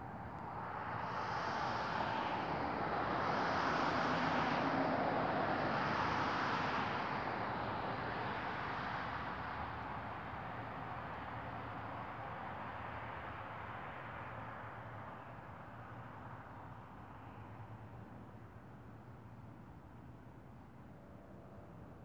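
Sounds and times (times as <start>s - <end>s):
vehicle passing by: 0.6s - 9.9s.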